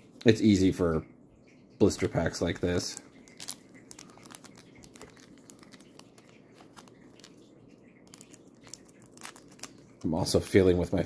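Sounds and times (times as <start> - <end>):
small crackles and clicks: 1.4 - 11.0
foil wrapper crinkling: 1.8 - 10.7.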